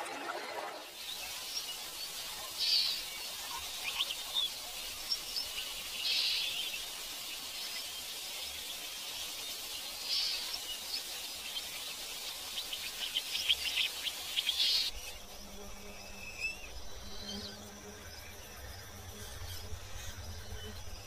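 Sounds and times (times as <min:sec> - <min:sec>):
high-pitched insect chorus: 0:01.0 - 0:21.0.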